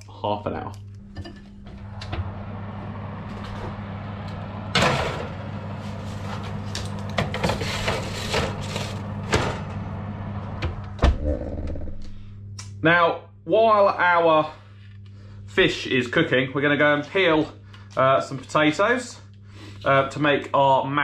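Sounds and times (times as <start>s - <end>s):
steady hum: 0.0s - 21.0s
oven door opening: 1.1s - 12.1s
metal trays scraping and clanking: 4.6s - 9.8s.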